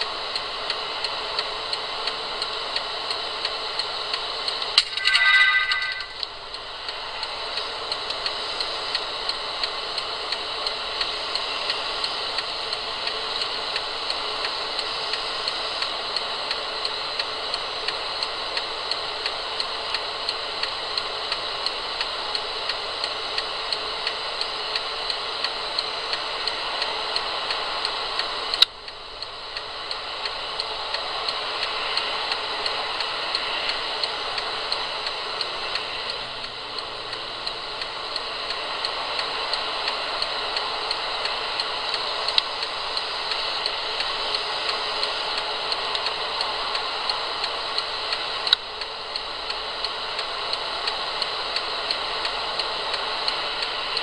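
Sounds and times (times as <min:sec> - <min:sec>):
sharp click: 0:04.8 - 0:06.3.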